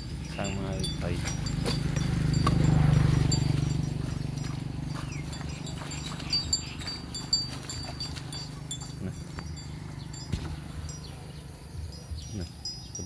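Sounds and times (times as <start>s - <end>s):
motorcycle engine idling: 0.0s - 12.9s
cow tearing grass: 0.4s - 9.6s.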